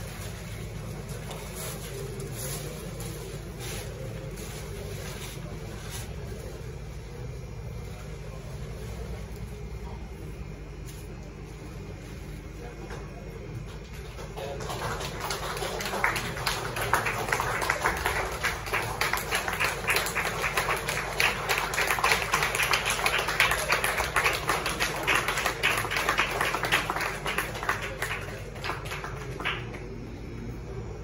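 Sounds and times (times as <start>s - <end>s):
audience applauding: 13.7s - 30.4s.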